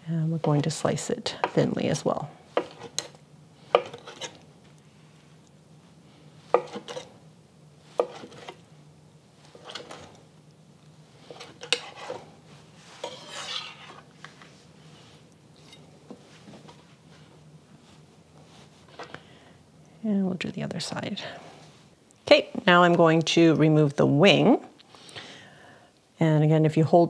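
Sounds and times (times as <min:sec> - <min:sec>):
knife scrape: 0:02.6 - 0:04.4, 0:06.5 - 0:07.1, 0:07.9 - 0:08.6, 0:09.5 - 0:10.2, 0:11.2 - 0:14.1.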